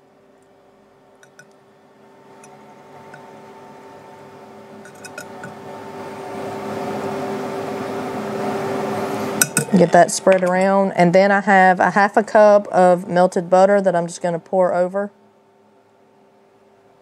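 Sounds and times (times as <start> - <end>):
steady hum: 0.0 - 17.0
whisk clinking against bowl: 4.8 - 5.6, 9.4 - 9.7.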